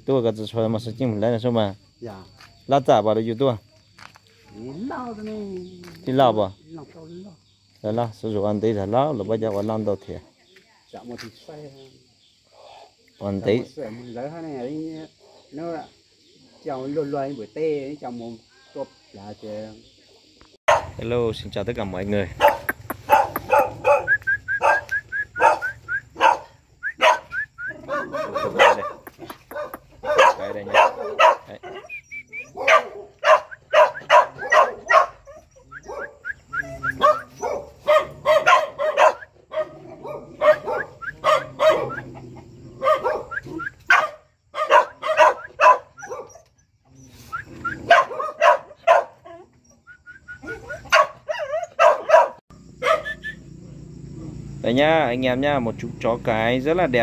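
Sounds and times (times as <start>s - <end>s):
dog barking: 20.7s - 21.0s, 22.3s - 46.6s, 47.6s - 49.5s, 50.4s - 53.8s
dog high cries: 22.4s - 29.0s, 50.4s - 53.3s.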